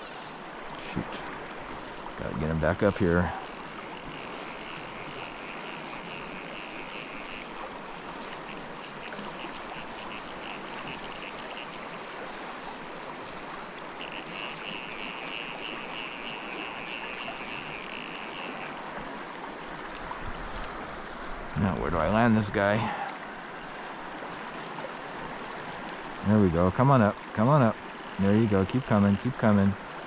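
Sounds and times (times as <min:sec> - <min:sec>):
high rapidly pulsing buzz: 0:00.0 - 0:00.6, 0:02.6 - 0:18.9, 0:27.5 - 0:29.6
river current rushing: 0:00.0 - 0:30.0.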